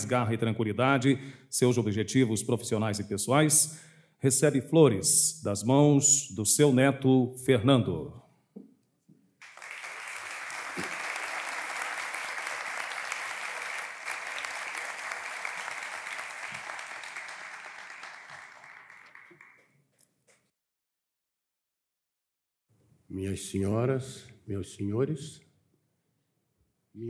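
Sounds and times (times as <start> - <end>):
audience applauding: 9.4 - 19.7.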